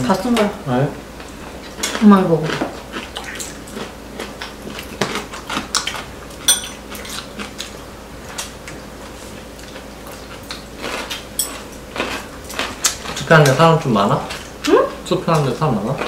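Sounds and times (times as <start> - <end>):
chopsticks clinking on ceramic bowls: 6.5 - 7.2, 11.4 - 11.6.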